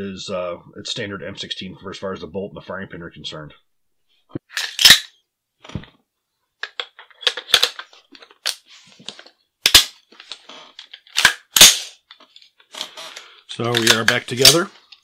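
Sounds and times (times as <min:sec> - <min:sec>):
rifle parts clacking: 0:04.5 - 0:05.1, 0:06.6 - 0:15.0.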